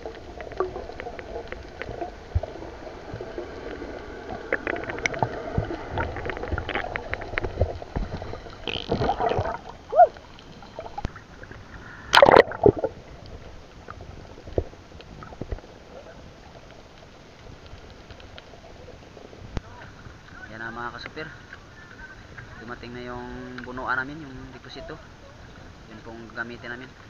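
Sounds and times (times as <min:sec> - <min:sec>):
bubbling surge: 0:00.0 - 0:16.0
water gush: 0:00.0 - 0:20.6
small underwater clicks: 0:00.0 - 0:22.5
underwater water wash: 0:00.0 - 0:27.0.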